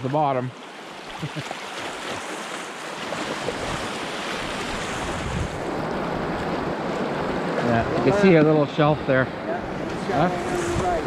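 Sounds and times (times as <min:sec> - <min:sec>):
rushing river water: 0:00.0 - 0:11.0
wind buffeting microphone: 0:03.2 - 0:08.4, 0:09.6 - 0:11.0.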